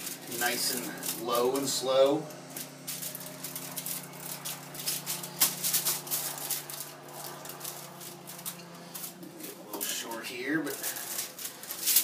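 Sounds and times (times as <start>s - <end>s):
aluminum foil crinkling: 0.0s - 12.0s.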